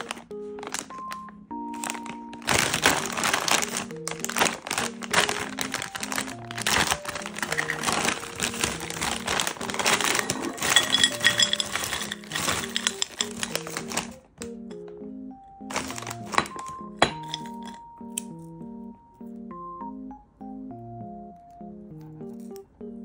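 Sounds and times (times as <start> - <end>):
plastic bag crinkling: 0.0 - 14.3, 15.7 - 17.8
light background music: 0.0 - 23.0.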